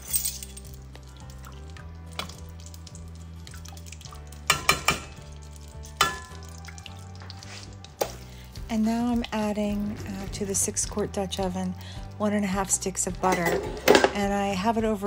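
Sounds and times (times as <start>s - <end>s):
spoon clinking against pan: 4.5s - 5.2s, 6.0s - 6.5s.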